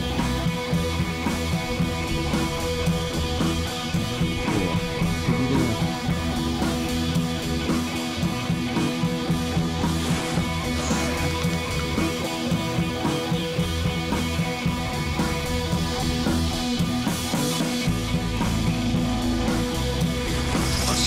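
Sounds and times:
rock music: 0.0 - 21.0.

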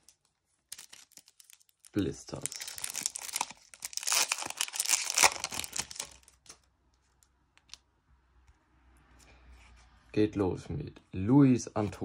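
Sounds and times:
foil pack tearing and crinkling: 0.7 - 6.4.

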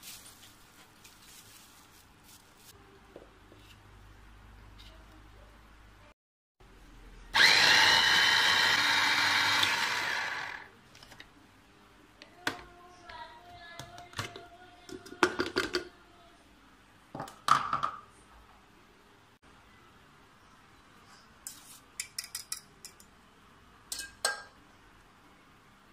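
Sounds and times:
food chopper motor whining: 7.4 - 10.7.

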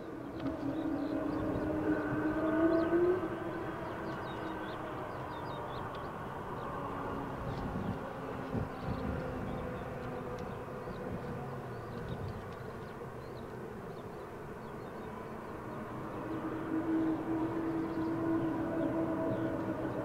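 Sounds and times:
jet engines humming: 0.0 - 20.0.

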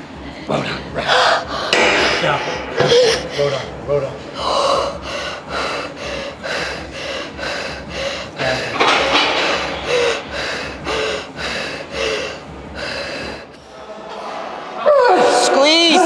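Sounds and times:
woman panting: 9.5 - 13.7.

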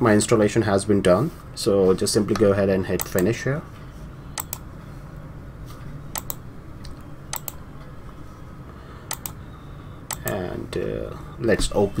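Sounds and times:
low steady hum: 0.0 - 12.0
computer mouse clicking: 3.0 - 3.3, 4.4 - 4.6, 6.1 - 7.6, 9.1 - 9.4, 10.1 - 10.4.

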